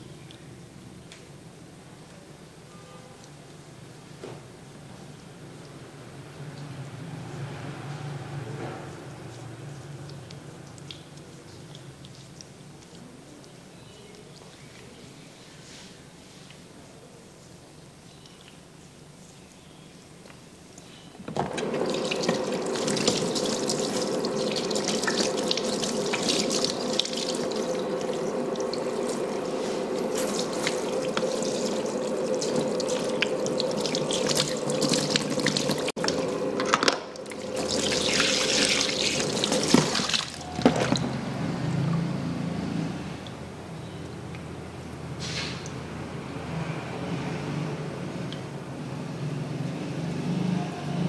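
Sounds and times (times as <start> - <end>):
tap water running into basin: 21.2 - 42.1.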